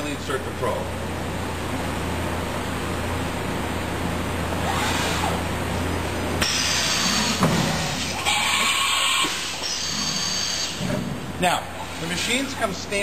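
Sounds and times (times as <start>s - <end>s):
constant machine hum: 0.0s - 13.0s
milling machine whine: 3.4s - 13.0s.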